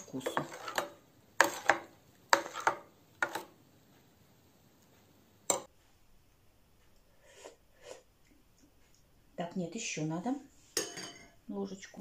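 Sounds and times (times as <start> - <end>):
metal spoon clinking on pot: 10.8 - 11.4.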